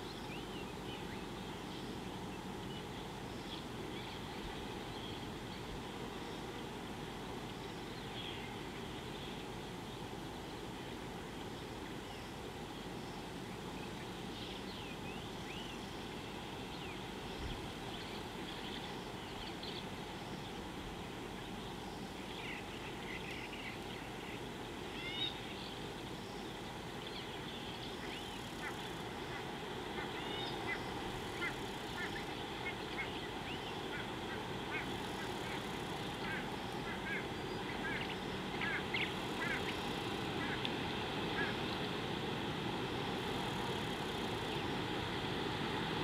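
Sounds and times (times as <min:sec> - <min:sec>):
outdoor background hiss: 0:00.0 - 0:46.0
high bird calls: 0:27.5 - 0:40.7.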